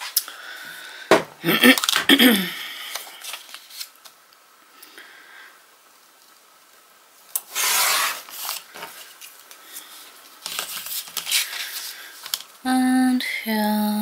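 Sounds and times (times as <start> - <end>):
paper rubbing and sliding: 7.4 - 12.4.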